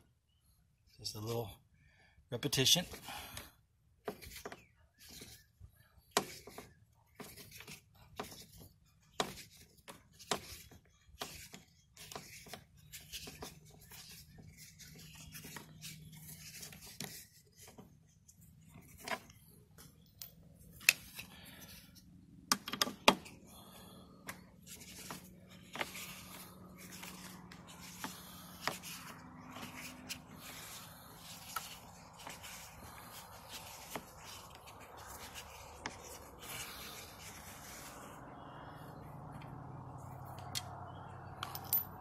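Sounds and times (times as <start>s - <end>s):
bolts handled by fingers: 6.0s - 23.4s.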